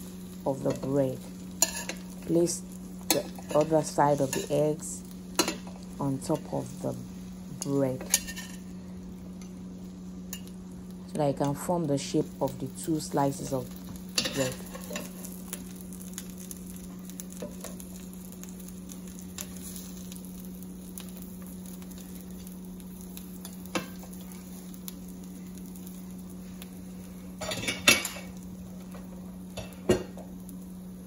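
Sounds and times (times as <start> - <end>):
egg sizzling faintly: 0.0 - 31.0
steady low hum: 0.0 - 31.0
metal spatula scraping frying pan: 8.0 - 8.6.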